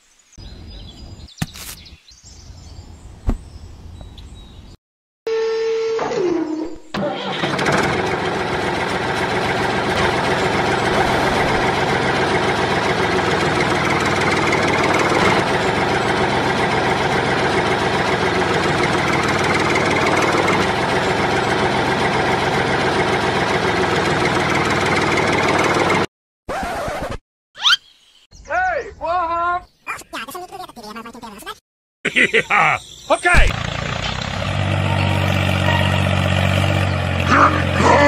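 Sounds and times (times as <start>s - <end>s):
tractor engine starting and running: 6.9s - 26.1s, 33.2s - 38.0s.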